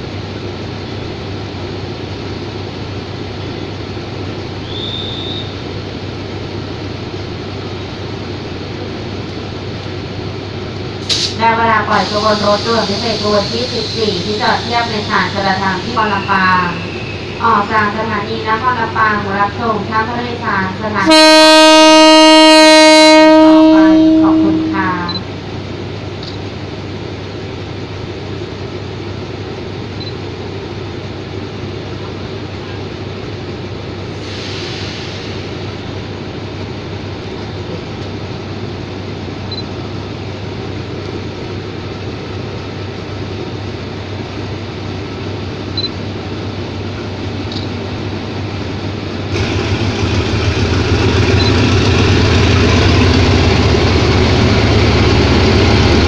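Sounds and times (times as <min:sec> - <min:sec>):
brief hiss: 0:11.0 - 0:11.4, 0:34.2 - 0:35.6
locomotive horn: 0:20.9 - 0:25.1
locomotive engine running: 0:35.1 - 0:56.0.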